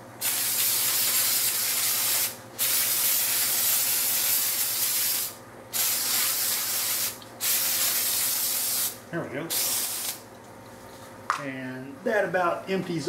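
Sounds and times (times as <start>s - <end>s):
aerosol spray can hissing: 0.2s - 10.2s.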